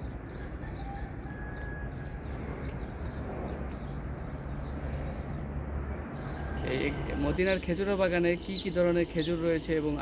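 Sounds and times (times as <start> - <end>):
steady low rumble: 0.0 - 7.1
outdoor background noise: 0.0 - 10.0.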